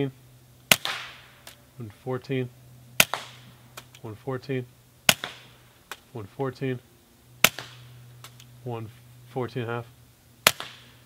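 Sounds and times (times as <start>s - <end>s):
suppressed pistol shots: 0.7s - 1.6s, 3.0s - 4.0s, 5.0s - 6.0s, 7.4s - 8.5s, 10.4s - 11.0s.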